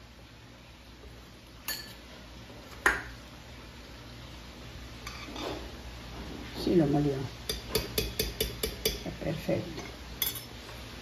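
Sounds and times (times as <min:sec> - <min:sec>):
metal spoon clinking glass: 0:10.2 - 0:10.5.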